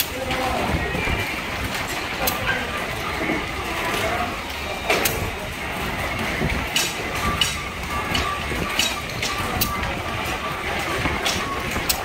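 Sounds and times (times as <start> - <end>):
plastic clacks: 3.2 - 12.0.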